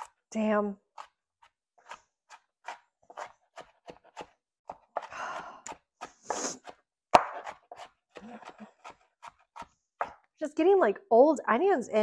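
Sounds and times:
knife chopping on cutting board: 1.0s - 5.1s, 5.7s - 10.2s
person breathing heavily: 5.0s - 6.6s.

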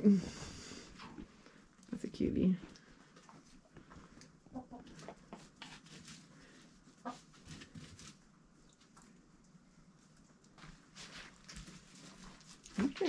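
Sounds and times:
chickens clucking: 4.4s - 5.8s, 6.9s - 7.4s.

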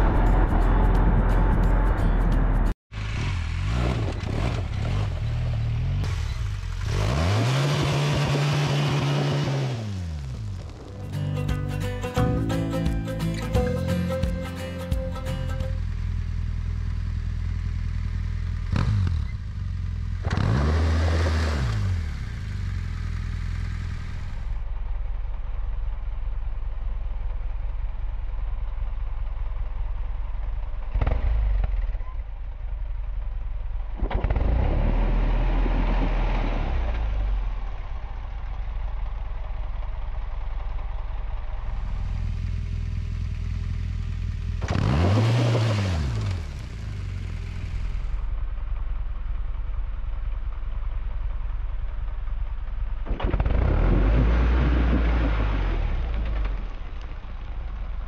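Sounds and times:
motorcycle engine idling: 10.4s - 20.2s, 22.0s - 31.0s, 37.2s - 44.7s, 46.4s - 53.2s.

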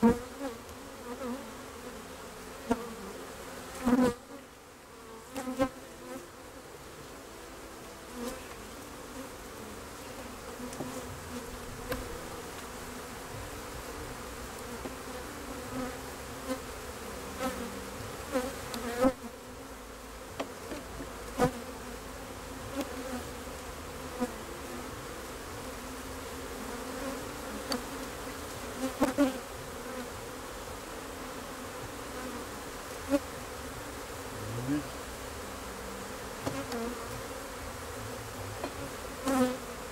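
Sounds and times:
bees buzzing: 0.0s - 39.9s
hive tool knocking wooden frames: 36.4s - 37.3s.

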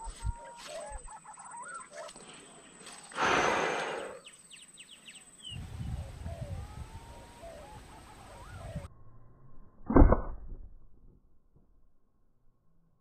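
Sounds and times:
pigeons whistled calls: 5.4s - 8.9s.

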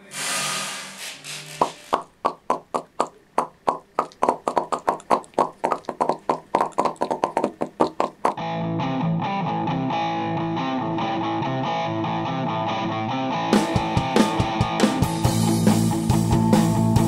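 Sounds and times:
popcorn kernels popping: 1.3s - 8.4s.

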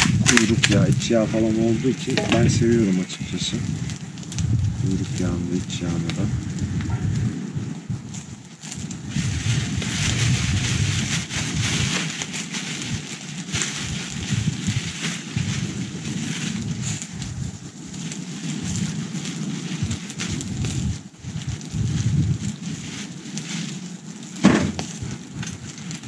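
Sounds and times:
charcoal grill hissing and crackling: 0.0s - 26.0s
wind rumbling on microphone: 0.0s - 26.0s.

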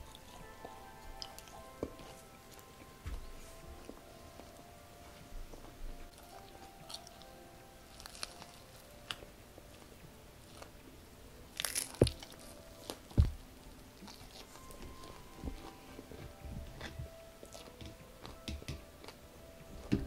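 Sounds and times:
crunchy chewing and biting: 6.1s - 10.8s, 11.5s - 19.2s
dull thumps: 13.1s - 13.5s.

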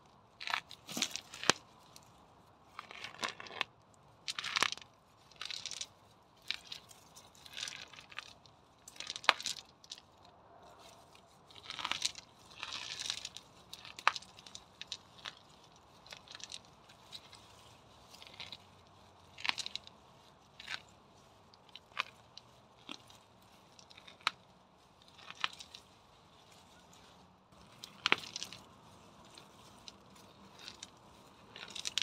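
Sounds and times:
weeds rustling and crunching: 0.0s - 32.0s
pebbles clicking together: 0.4s - 1.7s, 2.8s - 10.3s, 11.5s - 25.9s, 27.5s - 32.0s.

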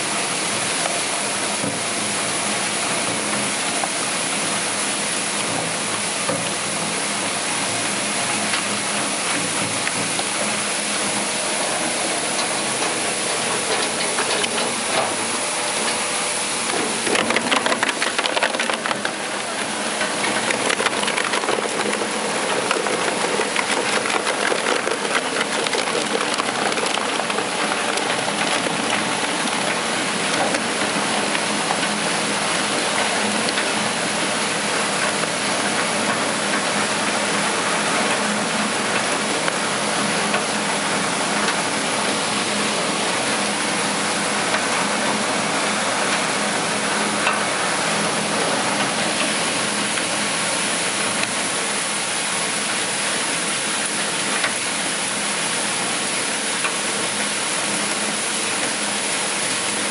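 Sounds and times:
shredder grinding plastic: 16.6s - 34.3s
loud cracking and crunching: 16.8s - 29.7s.

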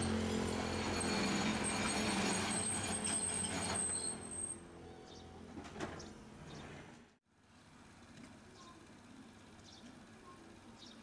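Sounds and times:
streetcar humming and whining: 0.0s - 6.6s
faint short squeaks: 1.1s - 4.6s.

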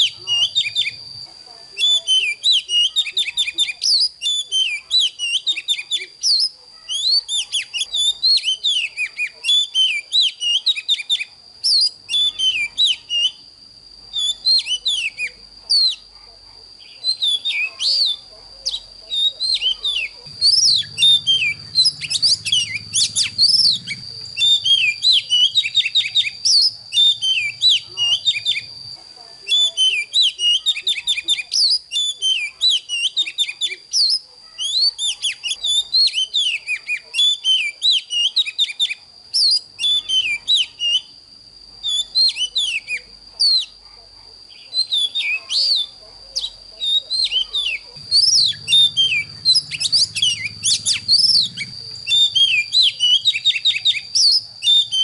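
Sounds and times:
songbird singing rapid sweeping notes: 0.0s - 13.4s, 14.1s - 16.1s, 16.8s - 28.8s, 44.5s - 55.0s.

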